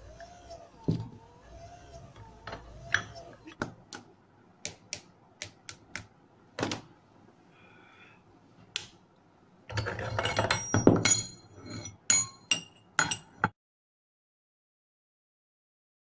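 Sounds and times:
metal clattering and scraping: 0:09.7 - 0:13.5.

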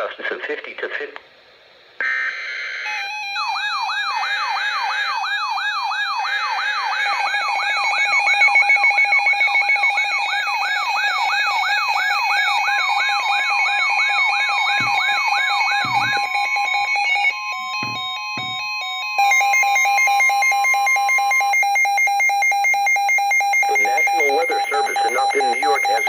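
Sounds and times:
steady alarm tones: 0:02.0 - 0:26.0
knocks: 0:14.7 - 0:16.4, 0:17.8 - 0:18.8
fast warbling beeps: 0:23.4 - 0:26.0.

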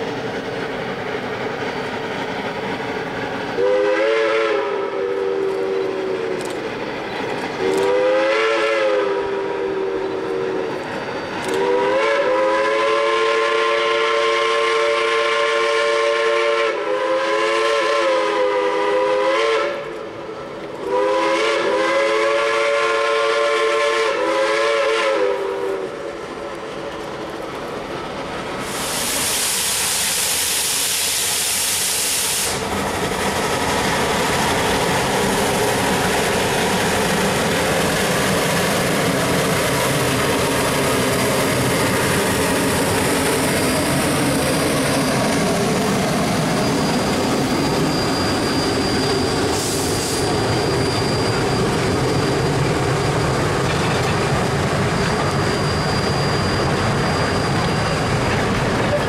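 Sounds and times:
steam hissing: 0:00.0 - 0:59.0
train running past: 0:00.0 - 0:59.0
steam locomotive chime whistle: 0:03.6 - 0:06.5, 0:07.6 - 0:26.2, 0:28.6 - 0:32.7, 0:46.2 - 0:54.2, 0:54.9 - 0:59.0.

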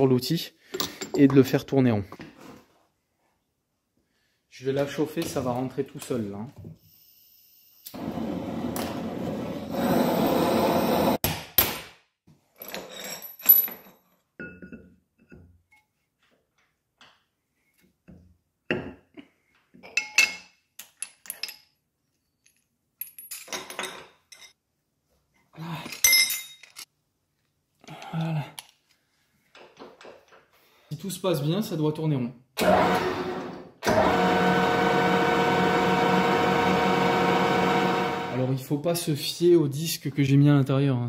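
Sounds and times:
metal parts clinking: 0:20.0 - 0:21.8, 0:22.4 - 0:24.6, 0:25.8 - 0:26.9.

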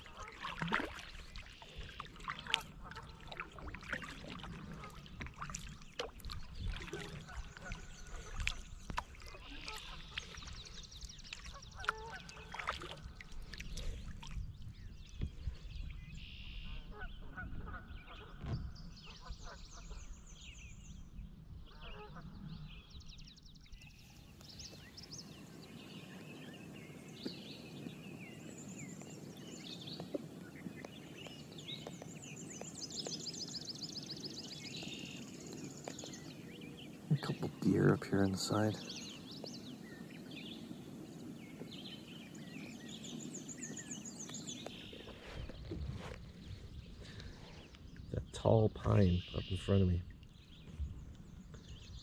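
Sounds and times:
kayak paddle knocks and water: 0:00.0 - 0:15.6, 0:18.3 - 0:19.1, 0:29.0 - 0:33.9, 0:34.5 - 0:36.9
wild birds calling and trilling: 0:00.0 - 0:21.0, 0:21.7 - 0:52.0.

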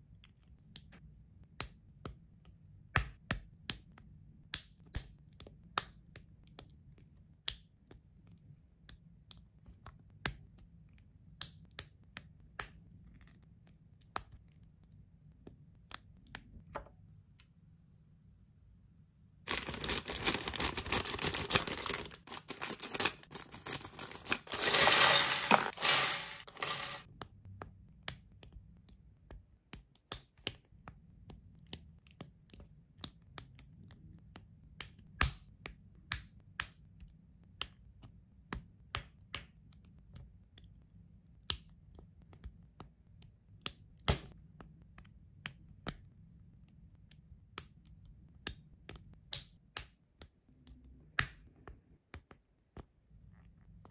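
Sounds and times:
plastic bag crinkling: 0:19.5 - 0:27.0
plastic pieces snapping together: 0:19.5 - 0:27.1.

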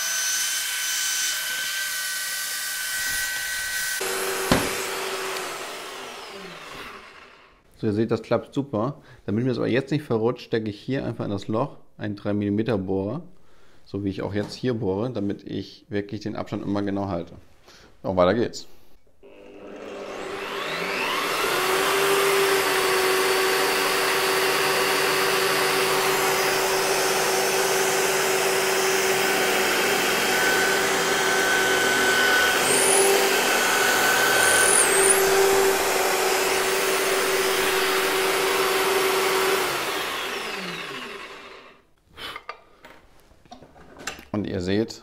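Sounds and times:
drill bit drilling plywood: 0:03.0 - 0:07.5, 0:19.2 - 0:41.8
drill press motor running: 0:04.0 - 0:07.5, 0:19.2 - 0:41.8.

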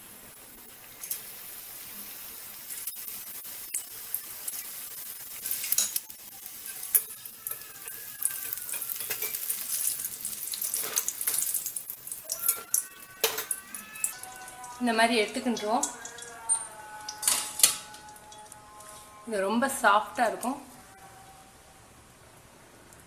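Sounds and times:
fish deep-frying in hot oil: 0:00.0 - 0:18.5
metal spatula scraping a pan: 0:03.7 - 0:11.6, 0:12.3 - 0:19.2.

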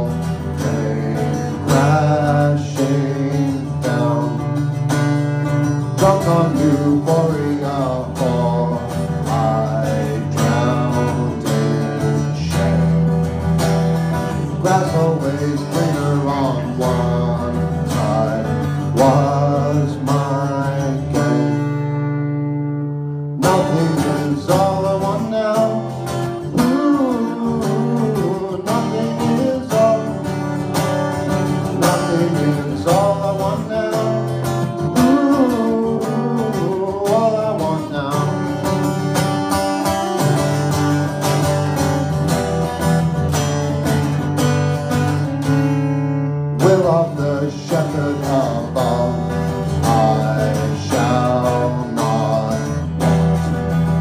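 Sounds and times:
man singing into a microphone: 0:00.0 - 0:05.1, 0:05.8 - 0:13.0, 0:14.3 - 0:22.0, 0:23.4 - 0:39.0, 0:46.6 - 0:53.2
acoustic guitar strumming: 0:00.0 - 0:54.0.

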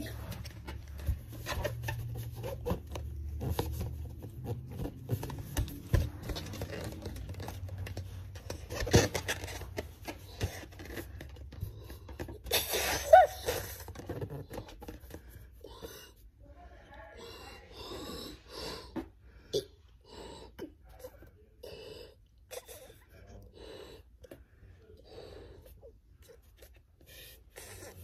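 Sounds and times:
rubbing and tapping on balloon: 0:00.0 - 0:16.2, 0:25.4 - 0:28.0.

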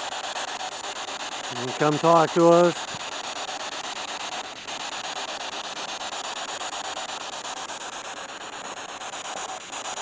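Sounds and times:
chopped radio static: 0:01.5 - 0:03.0.

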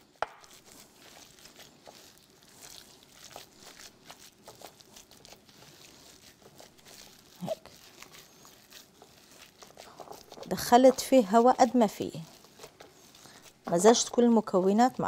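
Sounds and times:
gloved hand squishing meat: 0:00.0 - 0:15.0.

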